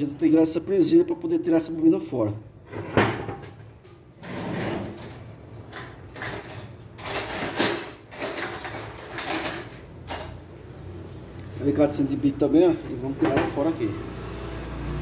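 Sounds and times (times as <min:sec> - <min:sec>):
hand tools clinking and scraping: 0:04.2 - 0:10.5.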